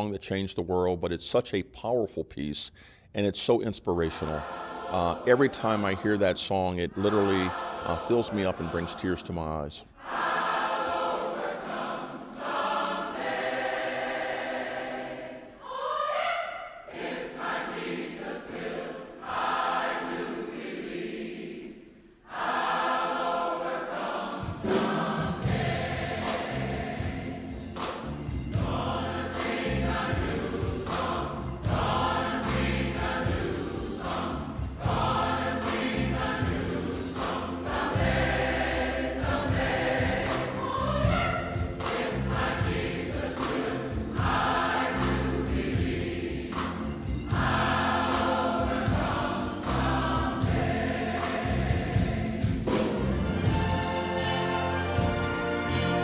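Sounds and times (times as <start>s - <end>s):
choir singing gospel hymn: 3.5s - 56.0s
orchestra: 24.4s - 56.0s
bass and drum kit beat: 25.4s - 38.6s, 39.2s - 53.9s.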